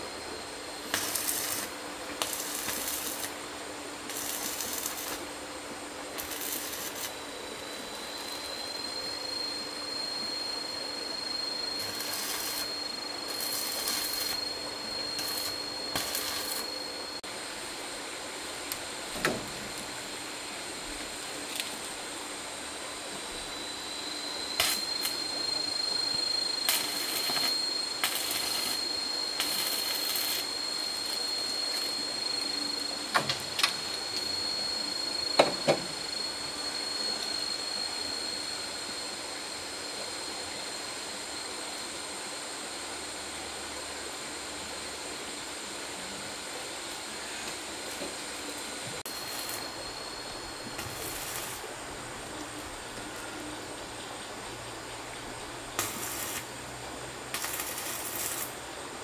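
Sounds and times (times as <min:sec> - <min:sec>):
high-pitched whine: 0:00.0 - 0:59.0
short bursts of hiss: 0:04.0 - 0:05.3, 0:55.8 - 0:56.6, 0:57.3 - 0:58.6.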